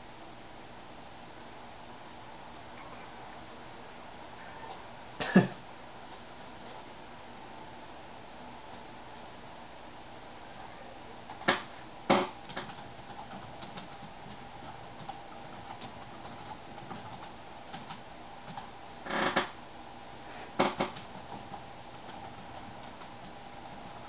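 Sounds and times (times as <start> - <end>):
keyboard typing: 11.4 - 18.7, 20.7 - 24.0.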